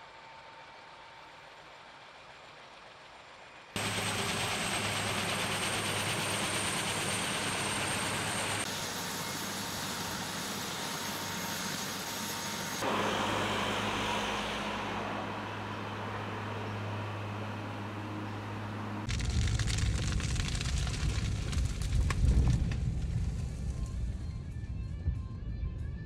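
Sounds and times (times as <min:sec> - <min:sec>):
helicopter engine rushing: 0:03.8 - 0:19.1
low hum: 0:12.8 - 0:26.0.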